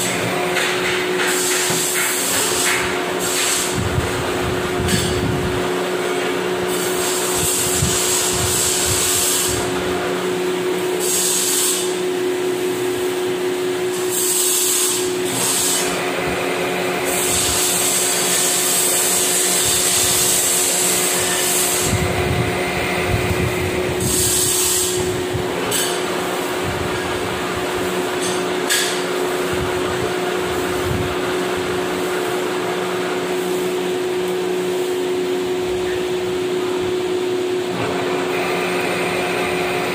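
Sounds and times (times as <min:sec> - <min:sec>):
high hiss of metal cutting: 0:06.7 - 0:09.7, 0:11.0 - 0:12.0, 0:13.9 - 0:16.0, 0:17.1 - 0:22.0, 0:24.0 - 0:25.1.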